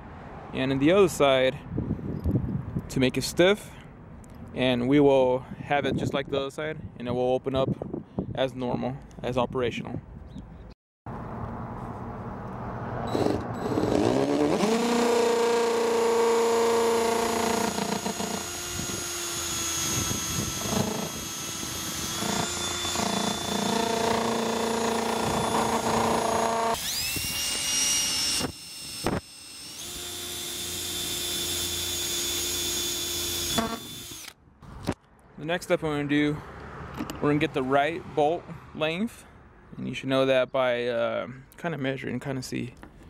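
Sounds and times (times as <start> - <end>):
power drill whining: 13.1 - 34.4.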